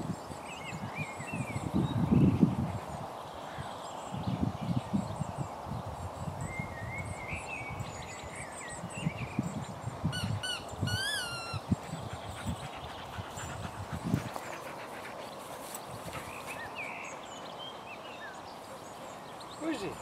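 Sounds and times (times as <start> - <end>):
short squeaky calls: 10.2 - 11.6.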